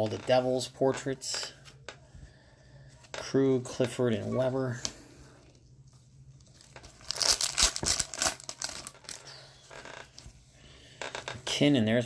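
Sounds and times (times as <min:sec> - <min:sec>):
foil wrapper tearing and crinkling: 0:06.5 - 0:10.0.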